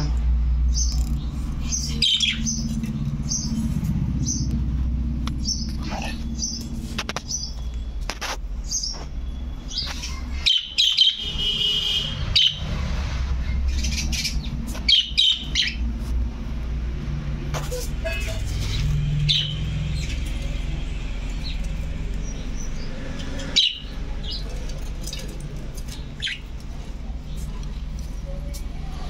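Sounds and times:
budgerigars chirping: 0.7s - 2.7s, 9.7s - 12.7s, 13.4s - 15.9s, 18.6s - 20.6s, 22.2s - 24.4s, 26.0s - 26.6s.

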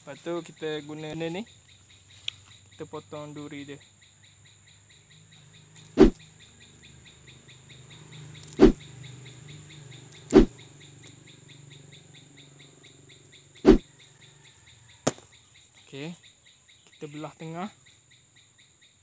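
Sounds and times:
pruning shears snipping: 5.9s - 6.2s, 8.4s - 8.8s, 10.2s - 10.6s
fast high chirping: 6.0s - 6.2s, 8.6s - 8.9s, 10.2s - 10.6s, 13.6s - 13.8s.

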